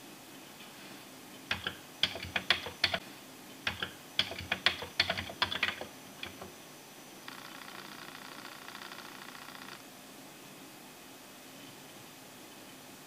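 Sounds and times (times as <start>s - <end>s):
keyboard keys clacking: 1.5s - 3.0s, 3.7s - 6.5s.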